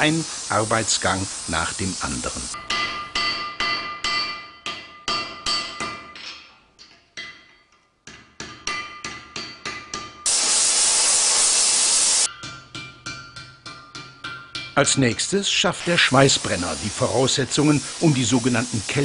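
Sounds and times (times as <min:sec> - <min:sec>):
loud steady hiss: 0:00.0 - 0:03.2, 0:10.3 - 0:12.3, 0:14.8 - 0:19.0
hammer striking steel on anvil: 0:02.6 - 0:10.3, 0:12.3 - 0:15.5.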